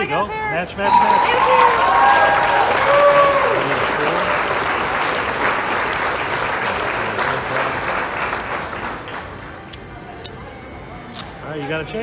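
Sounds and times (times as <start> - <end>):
clapping: 0.9 - 9.2.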